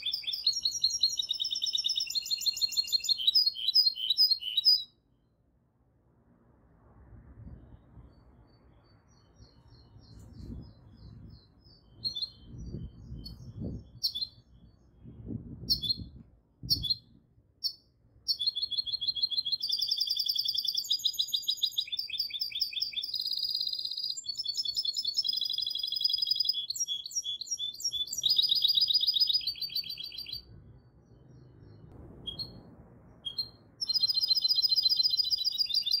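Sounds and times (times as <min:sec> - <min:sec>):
bird singing trills: 0:00.0 - 0:05.0, 0:08.5 - 0:16.1, 0:16.7 - 0:32.6, 0:33.2 - 0:36.0
bird chirps: 0:00.0 - 0:05.4, 0:07.7 - 0:36.0
dull low rumble: 0:31.5 - 0:33.8.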